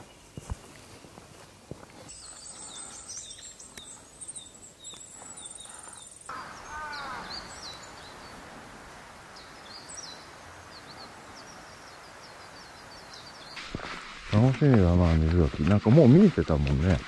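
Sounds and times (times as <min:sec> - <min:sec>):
small birds chirping: 0:00.0 - 0:17.0
lower falling bird call: 0:02.1 - 0:16.0
outdoor hiss: 0:06.2 - 0:17.0.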